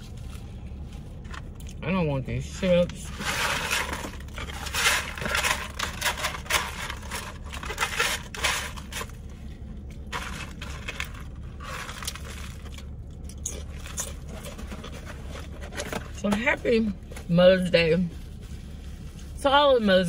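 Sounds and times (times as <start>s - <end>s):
crunching and crinkling packaging: 2.8s - 16.3s.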